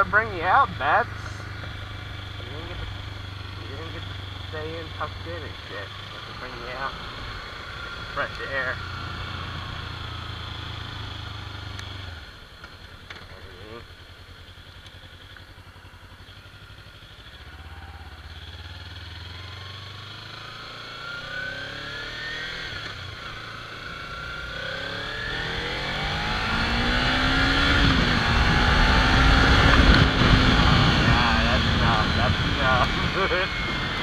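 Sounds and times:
motorcycle engine accelerating: 0.0s - 34.0s
wind rushing on microphone: 27.4s - 34.0s.

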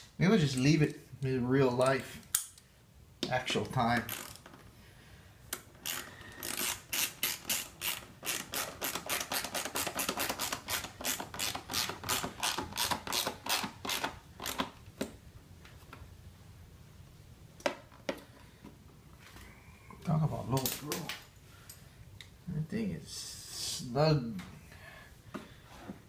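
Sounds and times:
ratchet wrench clicking: 4.0s - 4.4s, 5.8s - 14.6s.

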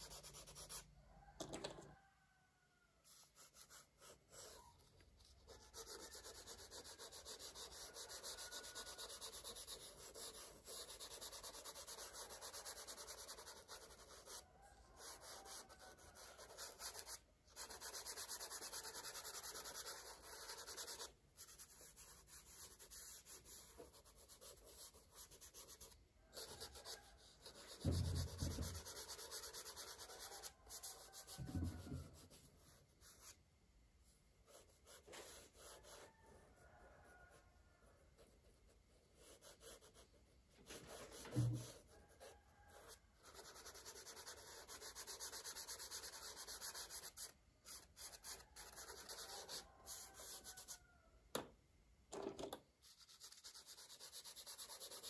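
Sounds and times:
crayon rubbing on paper: 5.4s - 14.4s, 15.0s - 33.3s, 40.7s - 50.8s, 52.9s - 55.0s.

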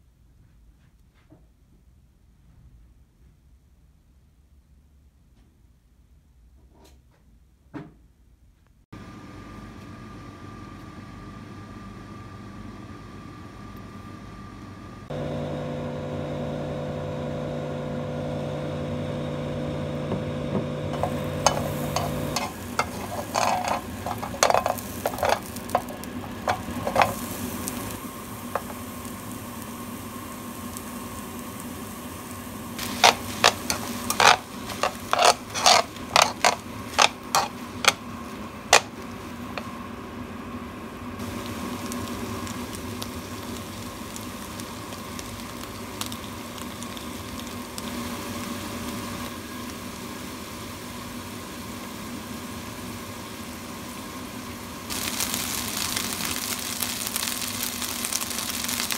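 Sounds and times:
steady hum: 11.9s - 52.3s
oil sizzling in a pan: 19.4s - 58.9s.

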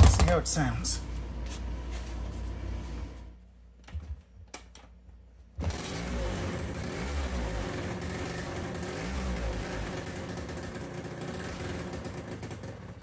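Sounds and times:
scooter engine running: 5.6s - 13.0s.

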